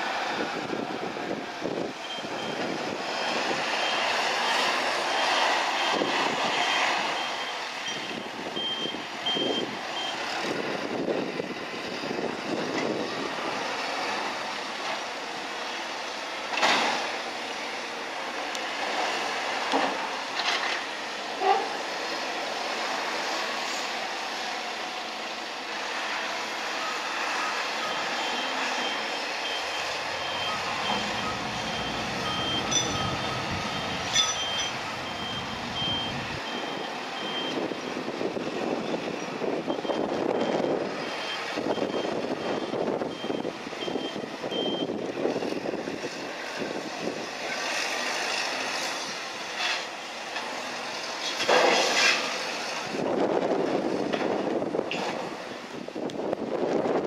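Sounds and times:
machinery warning beeper: 2.0s - 10.3s, 26.7s - 38.1s, 39.6s - 45.0s
machinery running: 27.8s - 37.7s
metal clanks: 32.4s - 33.3s, 34.0s - 34.8s.

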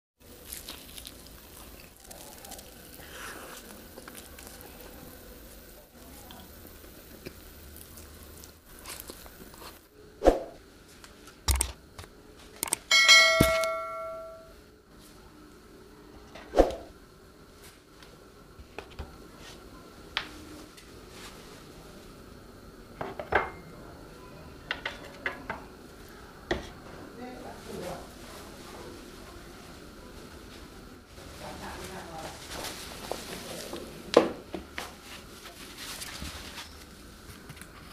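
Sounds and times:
dishes knocking and clinking: 12.9s - 14.5s, 23.0s - 23.6s, 24.7s - 25.6s
ringing clink: 12.9s - 14.5s.

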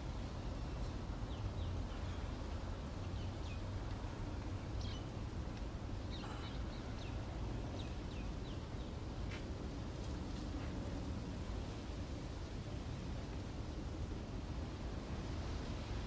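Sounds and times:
small birds chirping: 0.2s - 9.4s.

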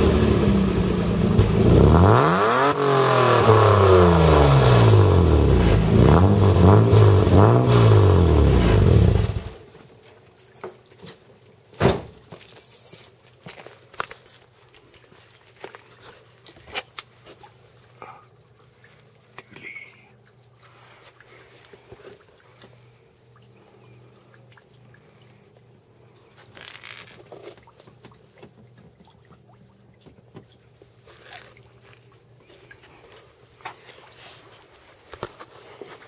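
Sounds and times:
car engine idling: 0.0s - 2.1s.

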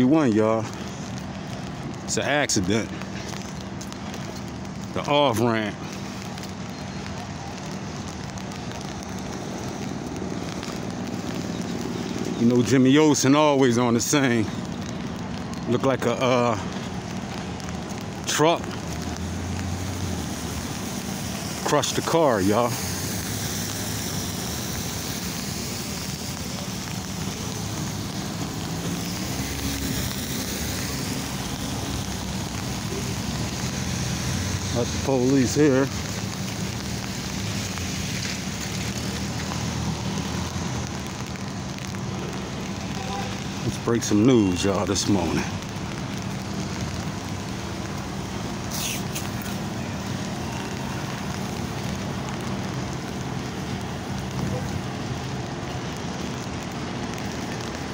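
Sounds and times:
tyres hissing on wet road: 0.0s - 57.9s
short hiss: 48.7s - 49.6s.

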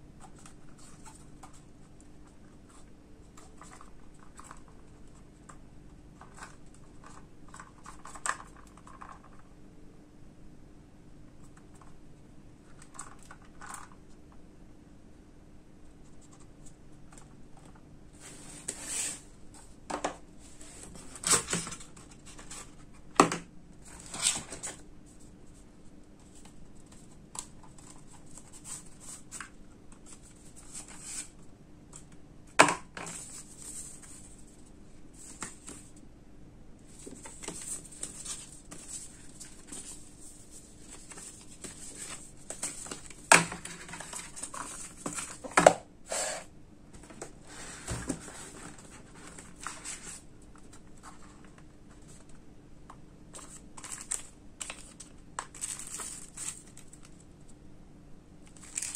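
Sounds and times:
paper leaflets rustling: 53.3s - 57.2s, 58.5s - 58.9s.

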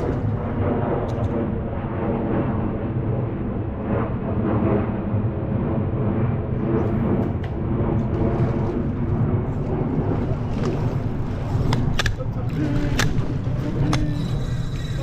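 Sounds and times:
airplane flying overhead: 0.0s - 15.0s.

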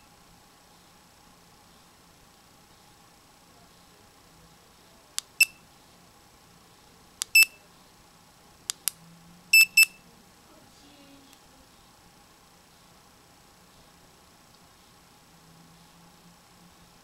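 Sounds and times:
short high beeps: 7.4s - 7.6s, 9.6s - 10.0s.

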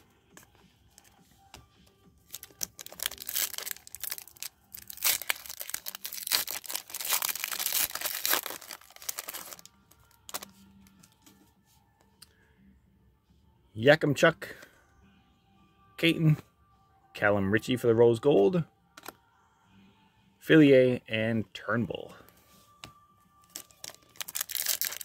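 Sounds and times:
foil wrapper crinkling and tearing: 2.3s - 10.5s, 23.4s - 25.0s.

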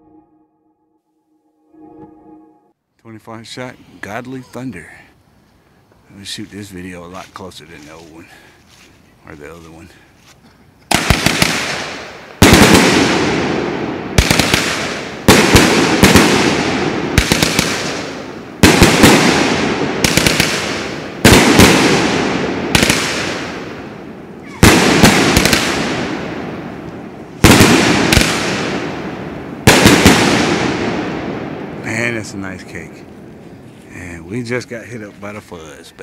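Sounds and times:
firework bangs echoing: 10.9s - 33.3s.

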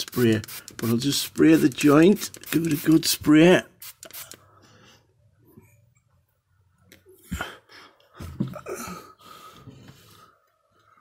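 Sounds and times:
aerosol spray hissing: 0.0s - 4.4s.

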